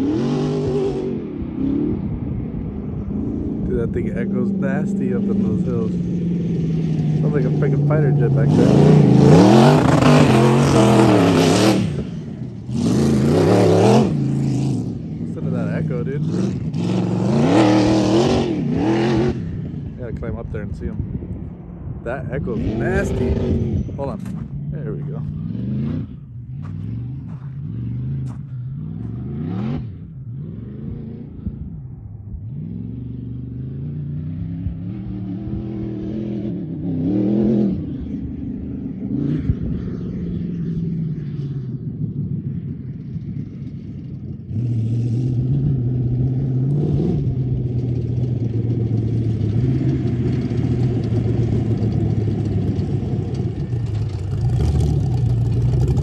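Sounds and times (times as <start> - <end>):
off-road buggy engine revving: 0.0 - 21.1, 22.0 - 56.0.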